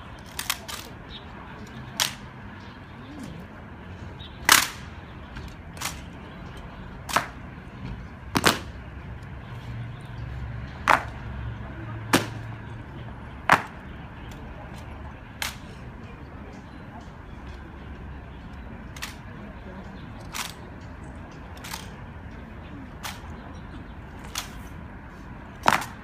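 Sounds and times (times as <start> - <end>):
rifles slapped and handled: 0.2 - 0.9, 1.9 - 2.2, 4.4 - 4.8, 5.4 - 6.2, 7.1 - 7.4, 8.4 - 8.7, 10.9 - 11.2, 12.2 - 12.5, 13.5 - 15.8, 18.9 - 19.3, 20.2 - 20.6, 21.5 - 21.9, 23.0 - 23.3, 24.2 - 24.6, 25.6 - 26.0.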